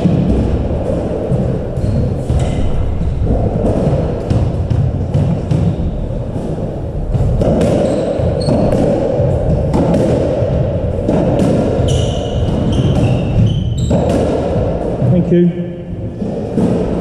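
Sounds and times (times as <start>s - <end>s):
low hall rumble: 0.0s - 17.0s
shoes squeaking on wooden floor: 7.2s - 9.5s, 11.7s - 14.2s
squash ball cracking off rackets: 7.2s - 14.9s.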